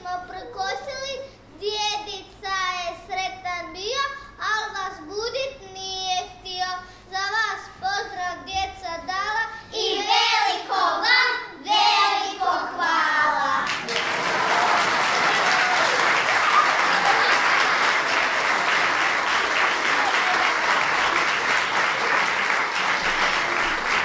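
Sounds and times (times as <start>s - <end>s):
child singing: 7.2s - 13.7s
audience applause: 13.7s - 24.0s.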